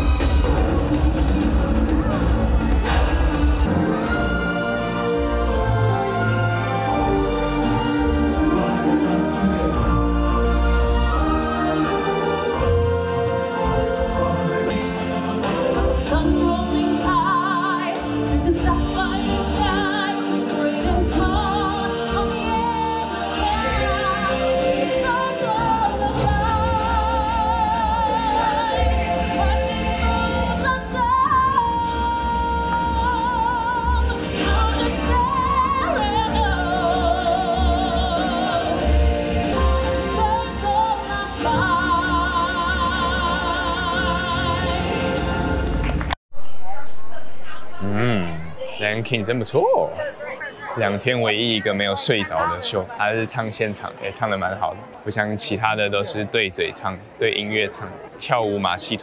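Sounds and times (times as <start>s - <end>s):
people singing with vibrato: 0.0s - 45.8s, 47.8s - 48.5s.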